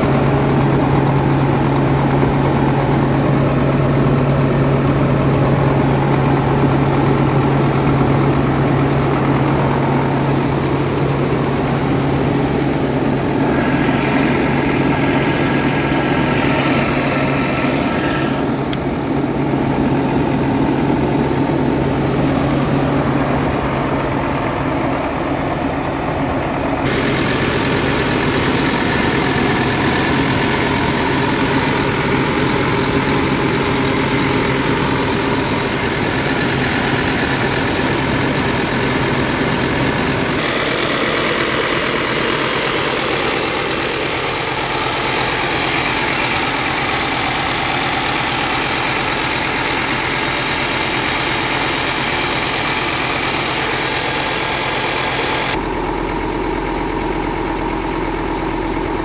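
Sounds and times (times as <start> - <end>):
diesel engine idling: 0.0 - 59.0.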